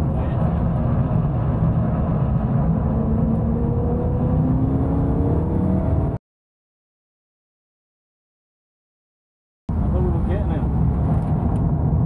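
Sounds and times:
car engine accelerating: 0.0s - 6.2s
road and wind noise: 0.0s - 6.2s, 9.7s - 12.0s.

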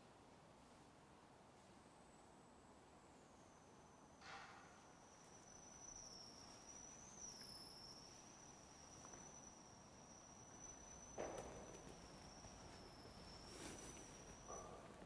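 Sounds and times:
faint high-pitched whine: 0.0s - 15.0s
soft shuffle or knock: 11.2s - 15.0s.

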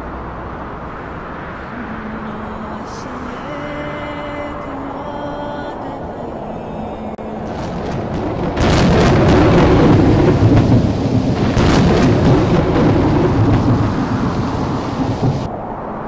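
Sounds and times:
loud rumbling roar: 7.2s - 15.8s.

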